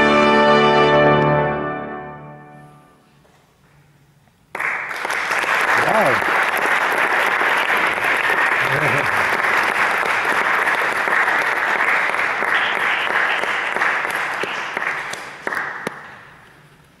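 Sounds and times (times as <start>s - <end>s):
audience applauding: 4.5s - 16.4s.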